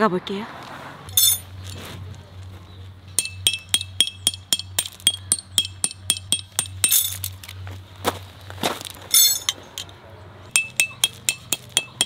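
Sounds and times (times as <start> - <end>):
hammer tapping metal stakes: 3.2 - 7.6, 10.5 - 12.0.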